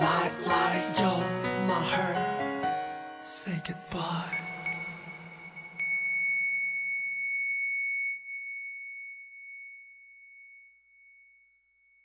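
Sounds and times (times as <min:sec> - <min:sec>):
high bell-like tone: 0:03.9 - 0:12.0.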